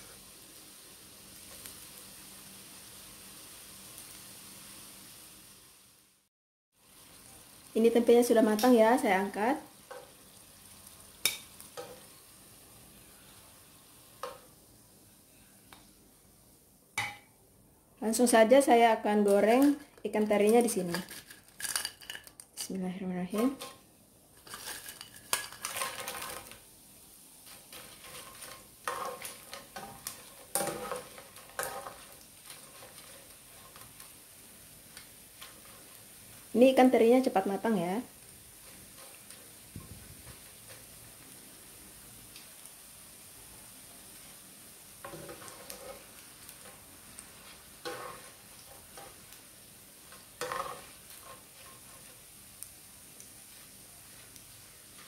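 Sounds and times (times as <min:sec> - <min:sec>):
fish sizzling in oil: 0:00.0 - 0:17.4, 0:18.0 - 0:55.0
spatula scraping a pan: 0:24.4 - 0:26.6, 0:27.4 - 0:34.2, 0:45.0 - 0:49.3, 0:50.0 - 0:52.3.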